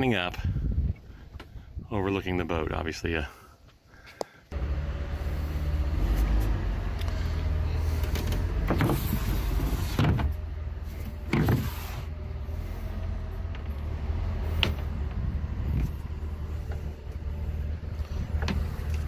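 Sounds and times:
wind buffeting microphone: 0.4 - 2.0, 14.4 - 18.9.

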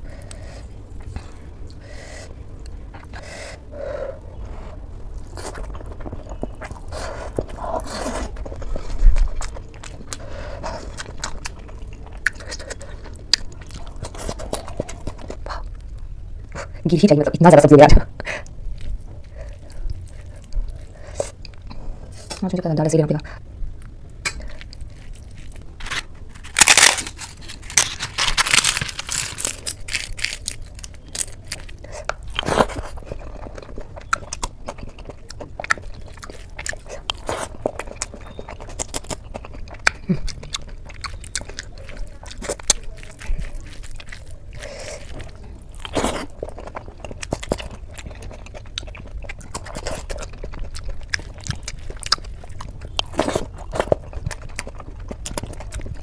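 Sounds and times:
chewing with crunches: 0.0 - 17.2, 18.2 - 22.5, 23.2 - 56.0.

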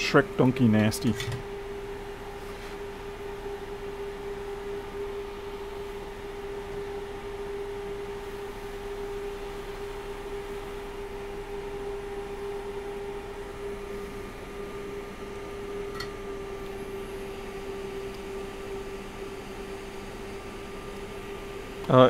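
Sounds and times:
steady mid-pitched hum: 0.0 - 22.0.

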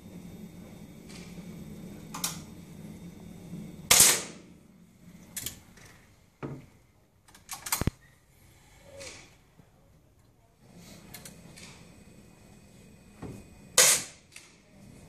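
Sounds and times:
air rifle shots: 3.9 - 4.4, 13.8 - 14.2.

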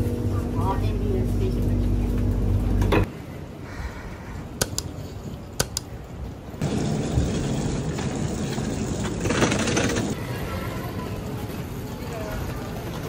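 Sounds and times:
sharp clicks: 4.6 - 5.0, 5.6 - 5.9
train rushing rumble: 6.6 - 11.8.

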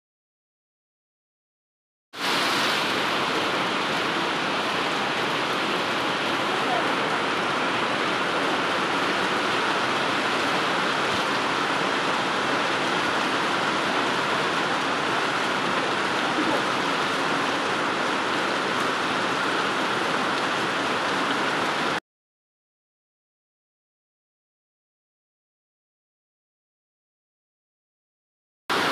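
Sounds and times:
heavy rain pouring: 2.2 - 22.0.

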